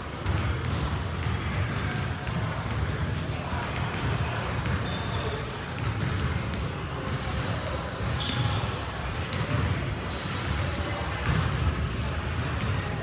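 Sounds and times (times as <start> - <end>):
basketball bouncing on gym floor: 0.1 - 13.0.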